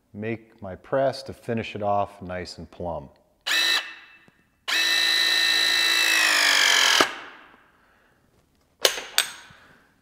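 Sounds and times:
hydraulic press tool whining: 3.5 - 7.4.

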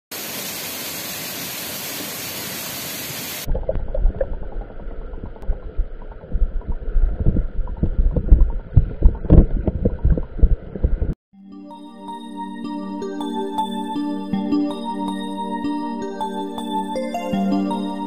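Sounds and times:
waterfall pouring into pool: 0.1 - 4.9
small underwater knocks: 3.5 - 11.1
muffled underwater rumble: 3.5 - 11.2
underwater gurgling: 3.5 - 11.2.

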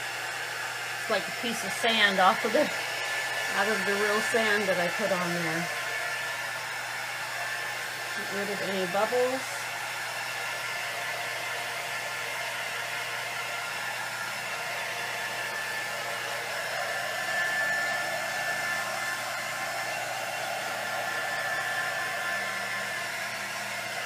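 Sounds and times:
hot-air blower running: 0.0 - 24.0.

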